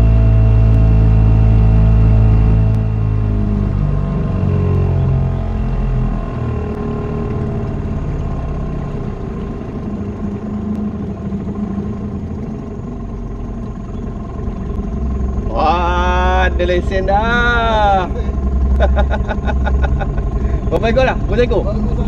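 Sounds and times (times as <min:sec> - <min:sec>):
outboard motor running: 0:00.0 - 0:22.0.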